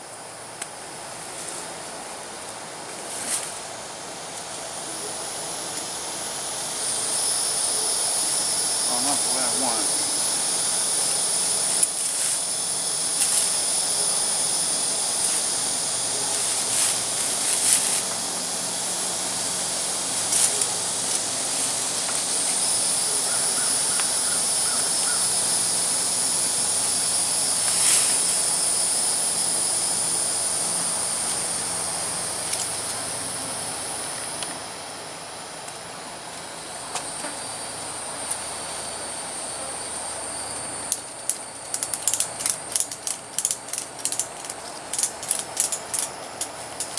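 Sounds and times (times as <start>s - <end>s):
insects droning: 0.0s - 46.9s
strap ratchet clicking: 40.9s - 46.9s.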